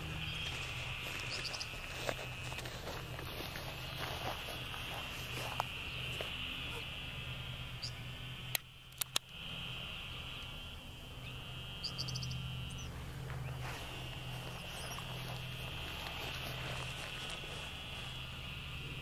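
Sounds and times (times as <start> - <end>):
low steady hum: 0.0 - 19.0
trilling chorus of pond animals: 0.0 - 19.0
sharp clicks: 8.4 - 9.5.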